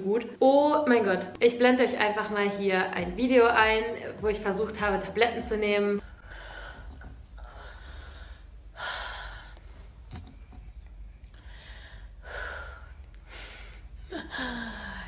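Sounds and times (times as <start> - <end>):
woman breathing hard: 6.0 - 10.0, 11.3 - 15.0.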